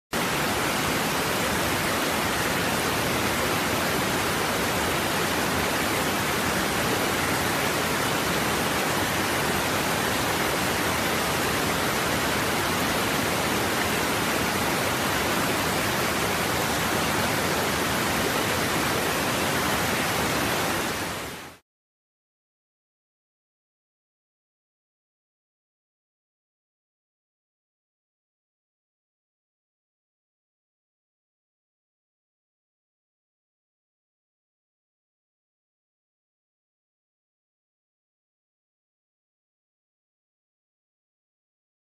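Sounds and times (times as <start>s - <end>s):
waterfall rushing over rocks: 0.2s - 21.6s.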